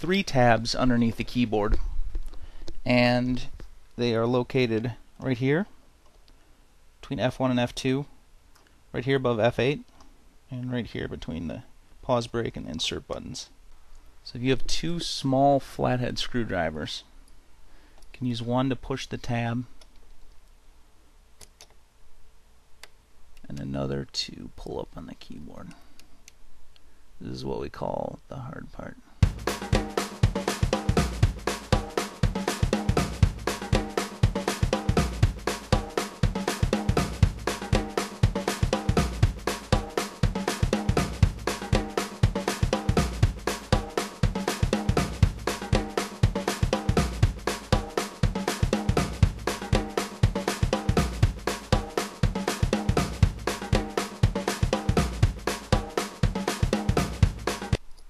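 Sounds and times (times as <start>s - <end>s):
music with steady drum beat: 0.0s - 1.4s, 29.2s - 57.8s.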